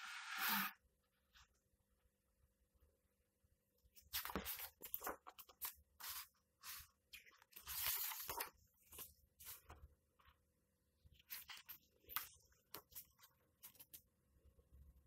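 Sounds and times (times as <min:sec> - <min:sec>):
book pages turning: 0:04.0 - 0:10.3, 0:11.2 - 0:14.0.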